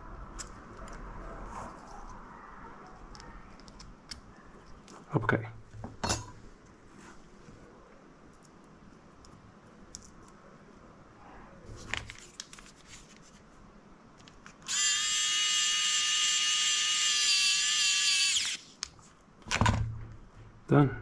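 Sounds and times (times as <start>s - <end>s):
electric screwdriver whine: 14.7s - 18.6s.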